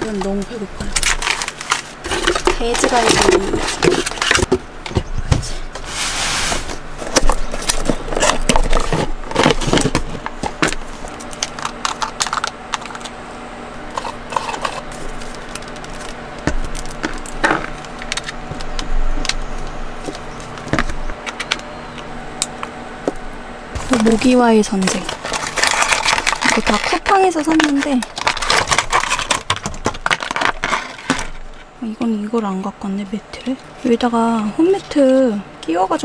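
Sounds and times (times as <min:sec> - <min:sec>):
packaging rustle: 0:13.9 - 0:21.0, 0:23.8 - 0:31.6.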